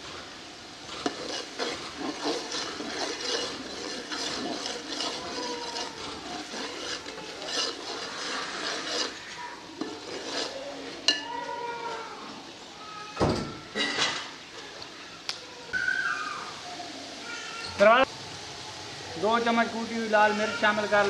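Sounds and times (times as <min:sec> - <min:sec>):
ladle scraping through thick sauce: 0:00.8 - 0:11.3.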